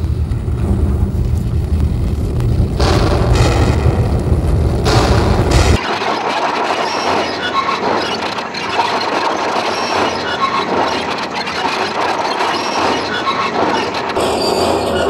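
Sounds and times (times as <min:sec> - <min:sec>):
dense electronic noise: 0:00.0 - 0:15.0
short high squeaky tones: 0:09.6 - 0:15.0.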